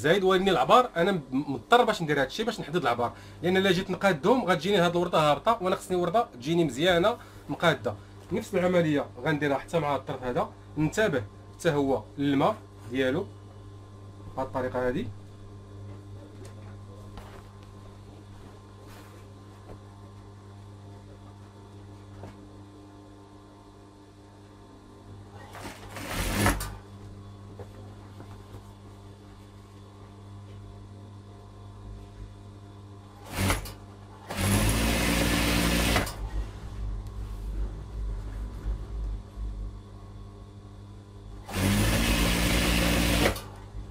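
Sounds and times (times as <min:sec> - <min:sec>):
steady low hum: 0:00.0 - 0:43.9
sewing machine stitching: 0:25.5 - 0:26.8, 0:33.2 - 0:36.2, 0:41.4 - 0:43.5.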